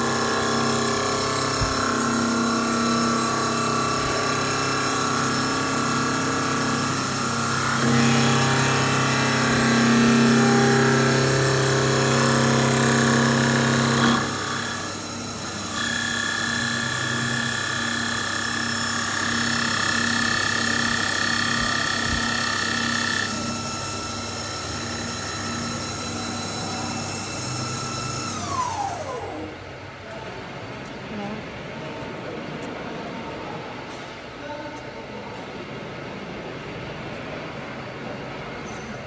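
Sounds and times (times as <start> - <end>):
lathe cutting wood: 0.0 - 29.5
lathe motor whine: 0.0 - 30.0.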